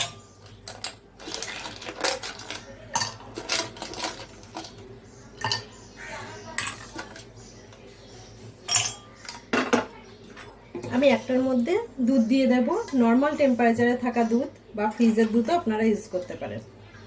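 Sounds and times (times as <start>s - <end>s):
ice cubes clinking in glass: 0.0s - 4.8s.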